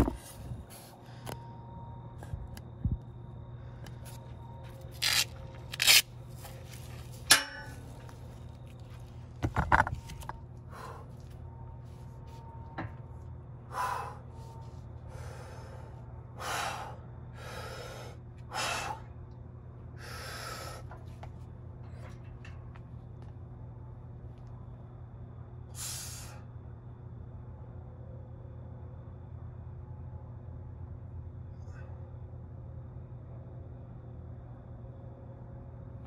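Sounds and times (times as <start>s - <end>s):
steady low hum: 0.0s - 36.0s
metal barbell clanking: 7.3s - 7.8s.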